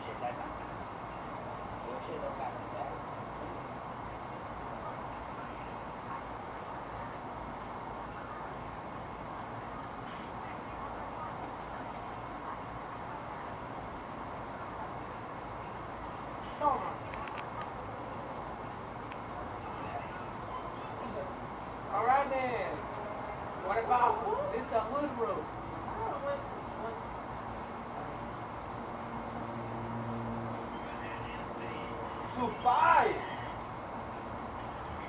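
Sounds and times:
crickets chirping: 0.0s - 35.0s
faint low background murmur: 0.0s - 35.0s.

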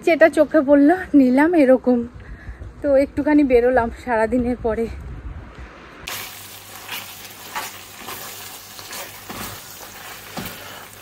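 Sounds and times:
meat sizzling in a frying pan: 6.1s - 11.0s
wooden spatula scraping a pan: 6.8s - 11.0s.

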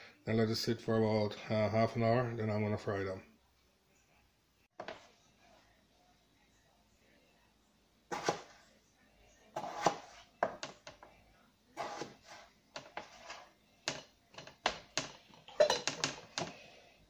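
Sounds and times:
knife chopping on cutting board: 8.1s - 8.6s, 9.6s - 10.6s, 11.8s - 13.4s.

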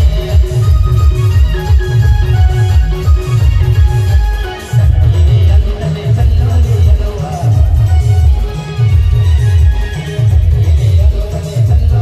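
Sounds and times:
bass line: 0.0s - 12.0s
held keyboard melody: 0.0s - 12.0s.

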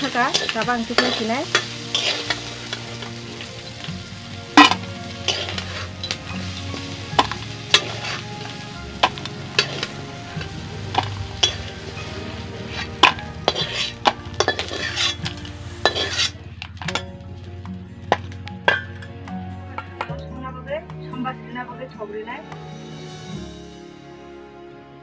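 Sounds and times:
metal spatula scraping wok: 0.0s - 19.2s
hot oil sizzling: 0.0s - 20.0s.

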